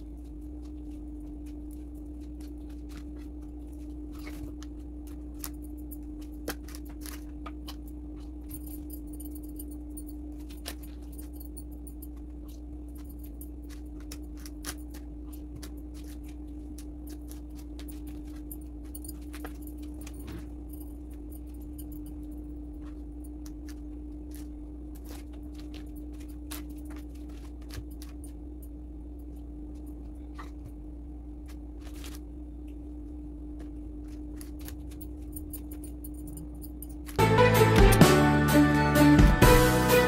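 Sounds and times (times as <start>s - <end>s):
steady low hum: 0.0s - 40.0s
metal bangles clinking: 34.8s - 37.2s.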